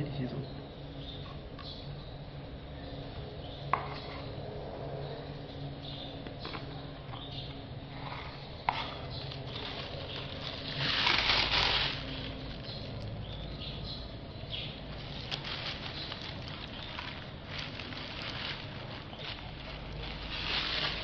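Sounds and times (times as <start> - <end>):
low steady hum: 0.0 - 21.0
rustling hiss: 7.9 - 13.3, 14.5 - 21.0.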